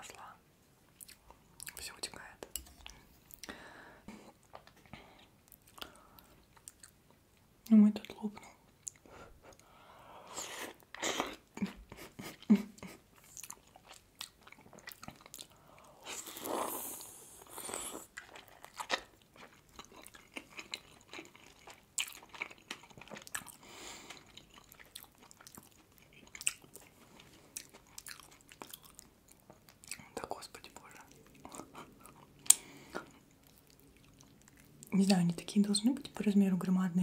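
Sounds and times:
chewing and biting dumplings: 0:10.7 - 0:15.6, 0:16.2 - 0:30.2, 0:30.9 - 0:35.0.

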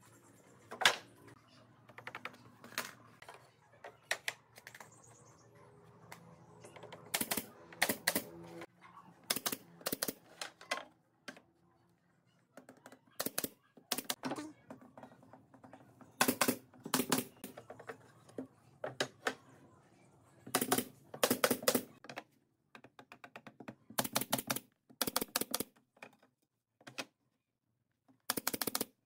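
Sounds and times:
nail gun firing: 0:07.1 - 0:08.3.

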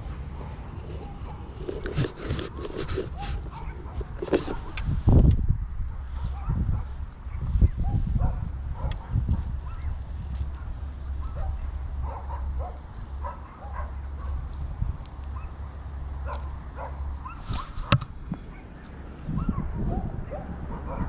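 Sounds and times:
low steady rumble: 0:00.0 - 0:21.0.

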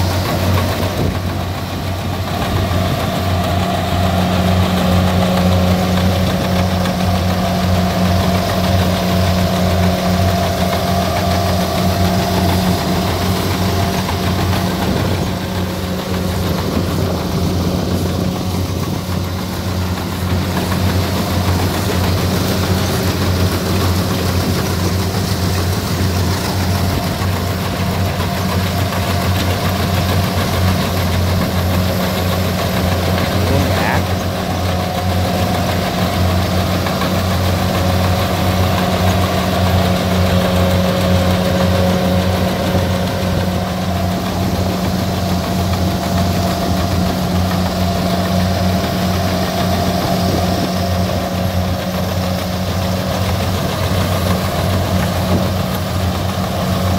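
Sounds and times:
combine harvester diesel engine: 0:00.0 - 0:56.9.

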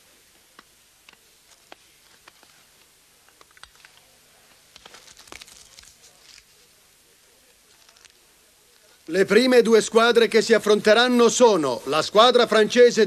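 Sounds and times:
paper crinkling: 0:01.1 - 0:09.1.

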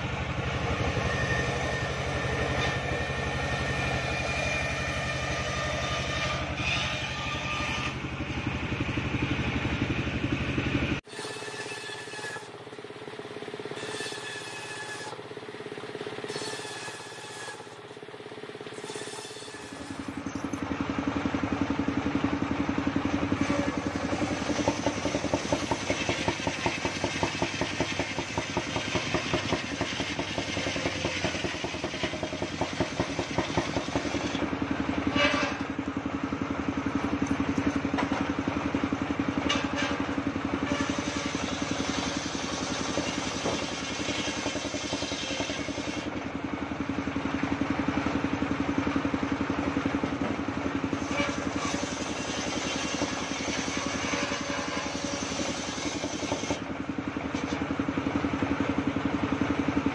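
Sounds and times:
circular saw running: 0:00.0 - 0:59.9
saw blade cutting log: 0:00.6 - 0:08.4, 0:11.0 - 0:12.9, 0:13.6 - 0:20.6, 0:23.0 - 0:35.8, 0:39.4 - 0:46.2, 0:50.8 - 0:56.7, 0:57.3 - 0:57.7.

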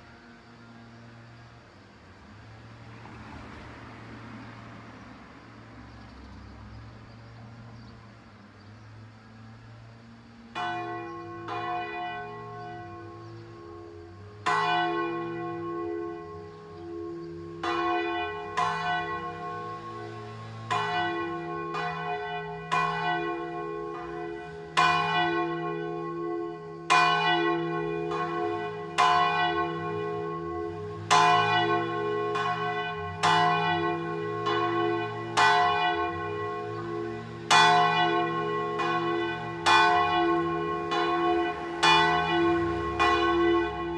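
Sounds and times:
large church bell ringing: 0:09.3 - 0:43.9.

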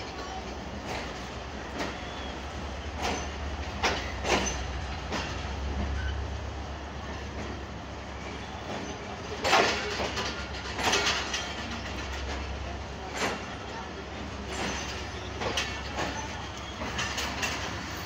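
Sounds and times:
train coach rumble: 0:00.0 - 0:18.0
metallic clanks from running gear: 0:03.0 - 0:05.4, 0:08.7 - 0:13.5, 0:14.4 - 0:17.9.

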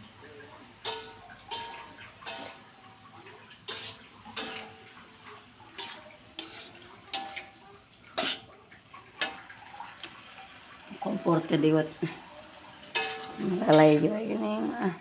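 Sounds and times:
metal spatula clanking on wok: 0:00.8 - 0:02.7, 0:03.6 - 0:08.5, 0:12.8 - 0:14.4.

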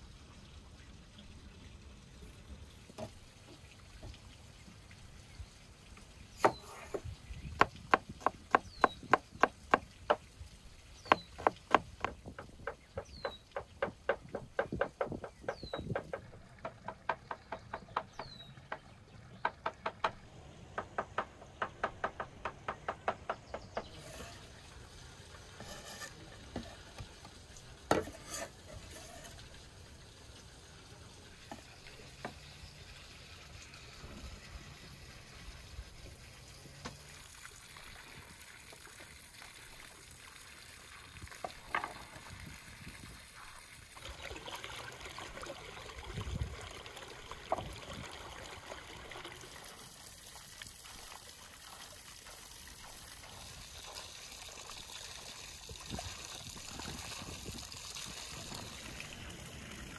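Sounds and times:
cleaver chopping on wooden board: 0:07.6 - 0:10.2, 0:11.1 - 0:18.2
knocks sweeping board: 0:27.9 - 0:29.2.

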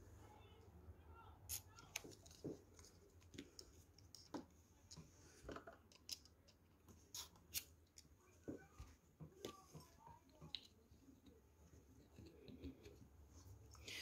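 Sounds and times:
faint clicks and light taps: 0:07.8 - 0:13.9.

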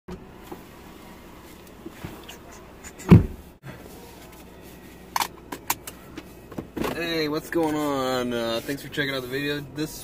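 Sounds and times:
knocks and rustling in seat: 0:02.9 - 0:03.5
car door thump: 0:03.1 - 0:03.5.

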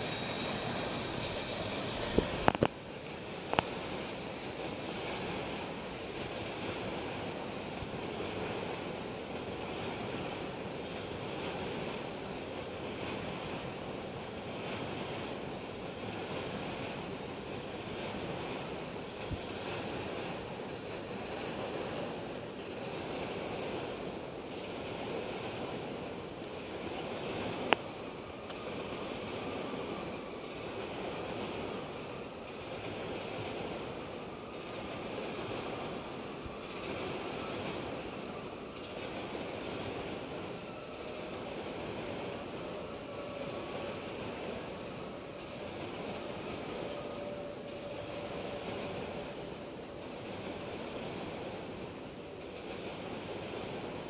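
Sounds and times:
wind on microphone: 0:00.0 - 0:10.6
distant train rolling: 0:00.0 - 0:54.0
water lapping: 0:00.0 - 0:54.0
wind: 0:00.0 - 0:54.0.

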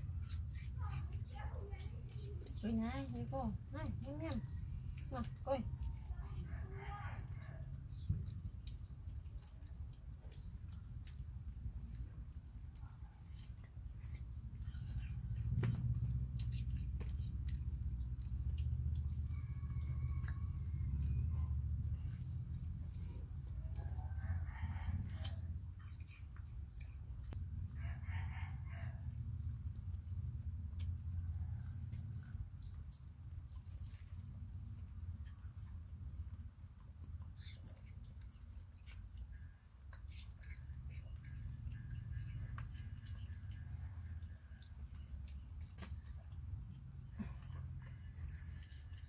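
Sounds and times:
low room hum: 0:00.0 - 0:49.0.

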